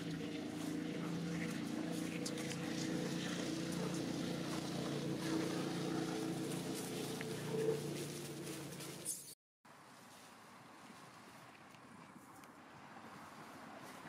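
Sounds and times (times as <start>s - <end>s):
engine running steadily: 0.0s - 9.3s.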